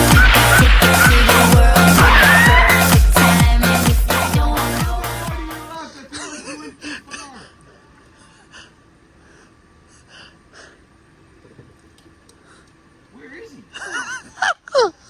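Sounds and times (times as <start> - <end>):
dance music: 0.0 - 5.8
short wavering voice sounds: 0.1 - 3.0.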